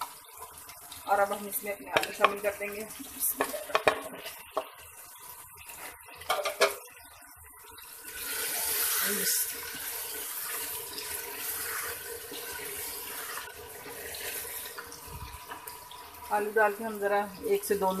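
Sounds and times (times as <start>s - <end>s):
oil sizzling: 0.0s - 18.0s
wooden spoon knocking pot: 1.3s - 2.4s, 3.3s - 4.7s.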